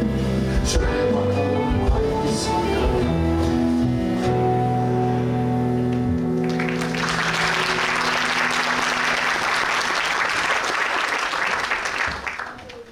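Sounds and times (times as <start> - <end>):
audience applause: 6.3 - 12.9.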